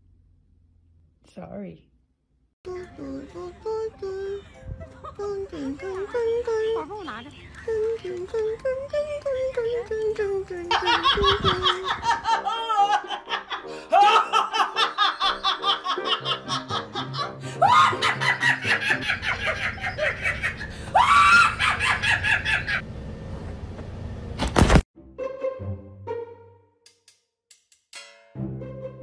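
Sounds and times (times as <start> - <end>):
background music: 2.7 - 8.9, 11.8 - 19.8, 25.0 - 29.0
woman laughing hard: 10.7 - 22.8.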